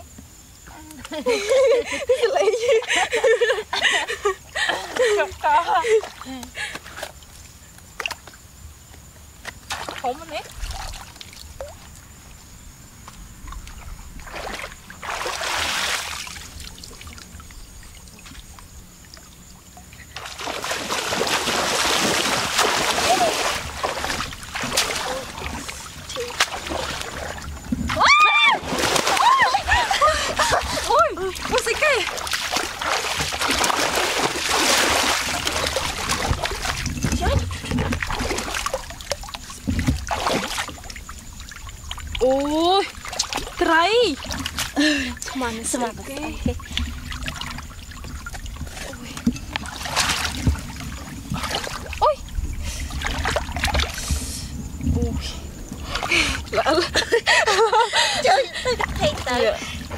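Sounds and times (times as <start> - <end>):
shallow water sloshing and splashing: 9.3 - 59.9.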